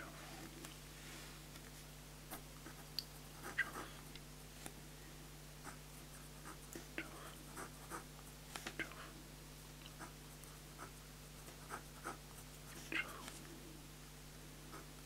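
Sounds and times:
pen scratching on paper: 10.8s - 13.2s.

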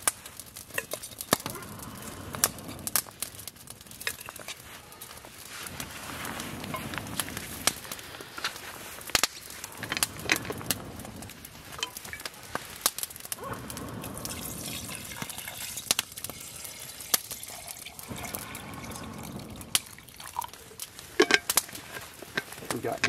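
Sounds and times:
water pouring into metal mug: 14.2s - 20.5s.

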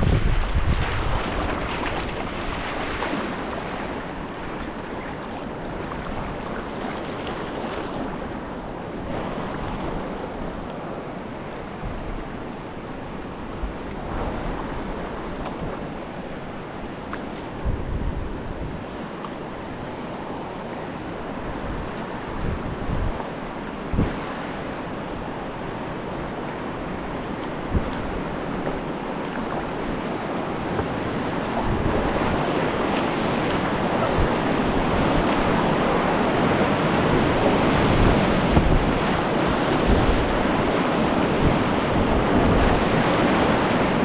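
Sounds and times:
whitewater rushing: 0.0s - 8.8s
wind rumbling on microphone: 0.0s - 44.0s.

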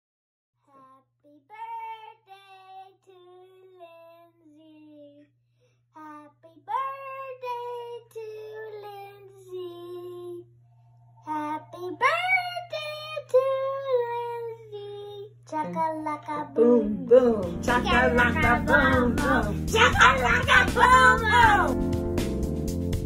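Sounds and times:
boy singing: 6.0s - 10.4s, 11.3s - 21.7s
steady low hum: 6.9s - 21.8s
woman singing along: 15.6s - 21.8s.

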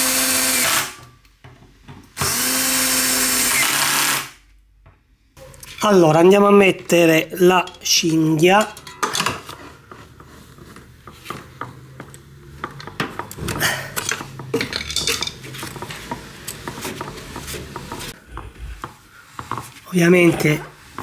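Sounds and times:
screwdriver and metal parts clinking: 7.4s - 9.5s, 12.7s - 15.8s.

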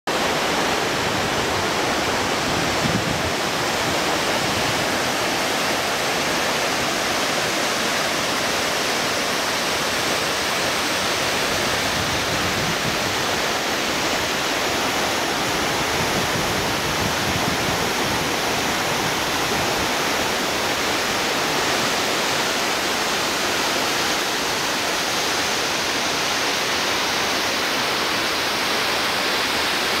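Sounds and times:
mountain stream: 0.1s - 30.0s
waterfall rushing: 0.1s - 30.0s.

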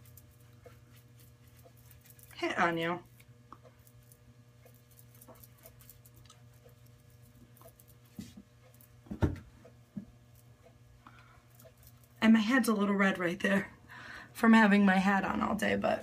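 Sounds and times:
powder brush on face: 0.0s - 8.9s
faint steady hum: 0.0s - 16.0s
knock: 9.1s - 9.4s.

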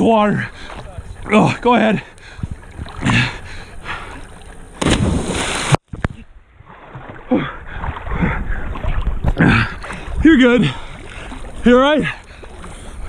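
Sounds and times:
water lapping and gurgling: 0.0s - 13.0s
person splashing into river: 4.8s - 5.8s.

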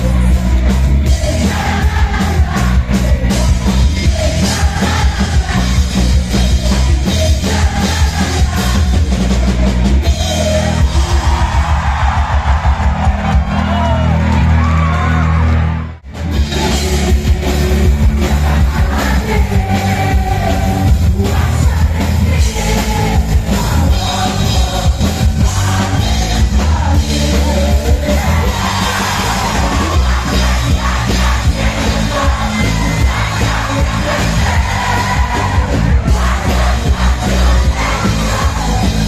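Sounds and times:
live band playing amplified music: 0.0s - 39.0s
steady bass: 0.0s - 39.0s.

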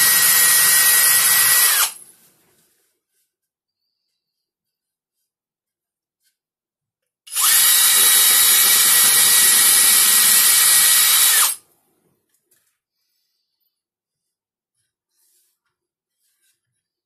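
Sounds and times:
cordless drill whining: 0.0s - 2.0s, 7.3s - 11.6s.

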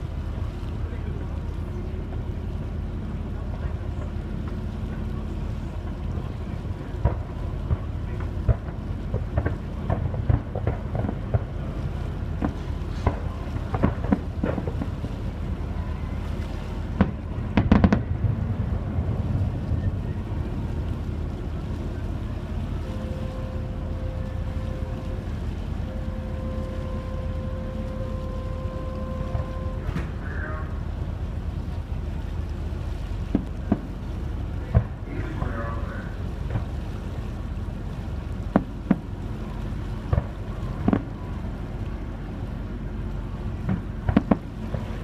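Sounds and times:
ferry engine rumble: 0.0s - 45.0s
wind on microphone: 0.0s - 45.0s
distant fireworks popping and booming: 5.7s - 25.5s, 33.2s - 35.6s, 36.4s - 36.9s, 38.1s - 42.0s, 43.5s - 45.0s
faint steady tone: 11.6s - 45.0s.

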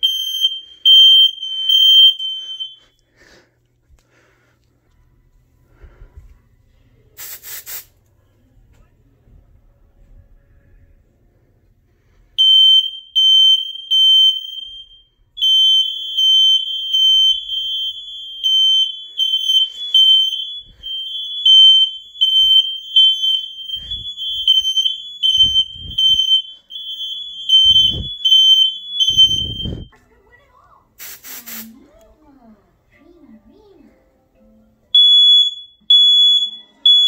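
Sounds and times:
smoke alarms beeping: 0.0s - 3.1s, 12.4s - 29.9s, 35.0s - 37.0s.

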